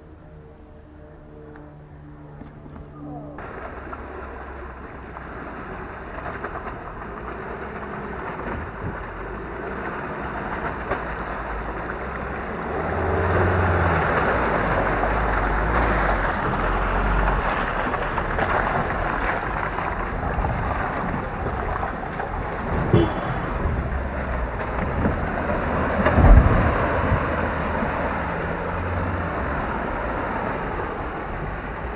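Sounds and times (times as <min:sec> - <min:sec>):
truck engine pulling through mud: 0:03.4 - 0:31.9
wind noise on microphone: 0:11.1 - 0:31.9.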